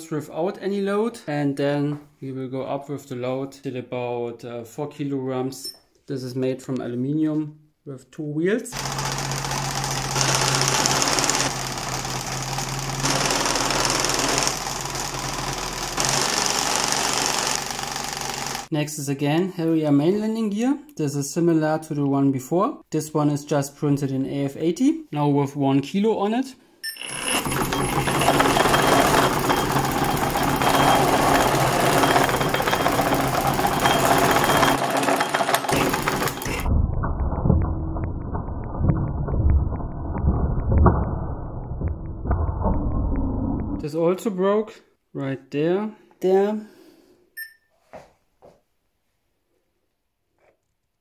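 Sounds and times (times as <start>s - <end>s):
wheels whirring on spinning drum: 8.8s - 18.7s, 27.1s - 40.9s
low hum: 35.7s - 43.8s.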